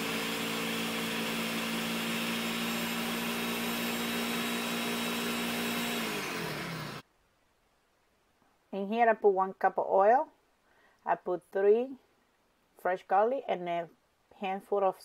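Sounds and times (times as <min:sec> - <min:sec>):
blender running: 0:00.0 - 0:07.0.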